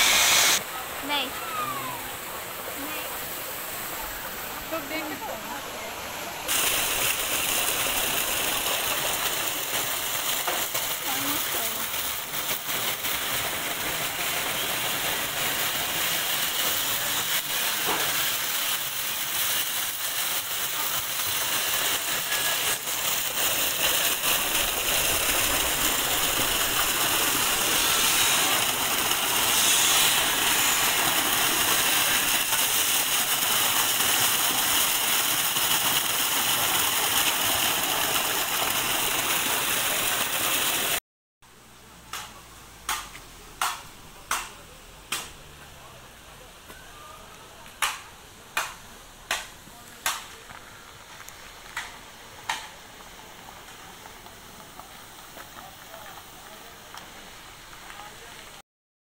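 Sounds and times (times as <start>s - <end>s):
water pouring and splashing: 0.0s - 41.0s.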